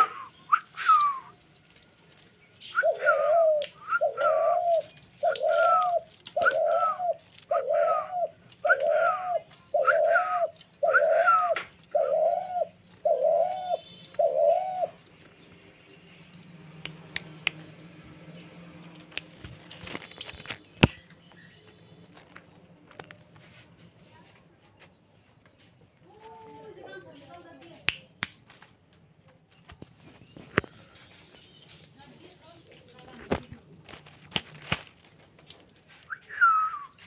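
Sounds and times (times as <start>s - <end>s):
dove cooing: 2.7s - 15.0s.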